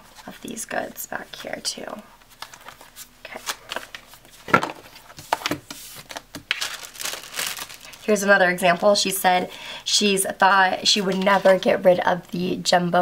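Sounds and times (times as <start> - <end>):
paper sticker sheets rustling: 2.3 - 9.0, 10.9 - 11.8.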